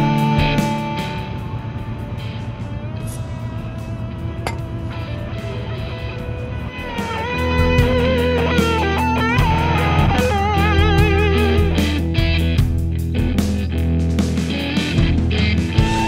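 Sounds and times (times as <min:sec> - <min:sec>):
rock music with electric guitar: 0:00.0 - 0:16.0
lead guitar with vibrato: 0:04.4 - 0:12.4.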